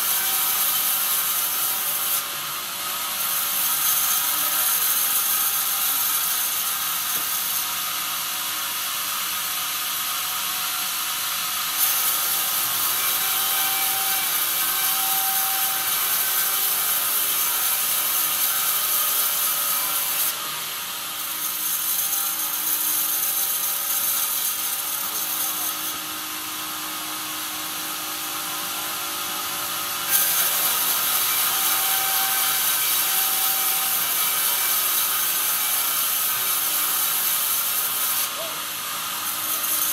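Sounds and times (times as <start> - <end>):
band saw blade cutting wood: 0.0 - 8.1, 11.7 - 39.9
saw and log carriage running: 11.8 - 27.0, 27.7 - 39.9.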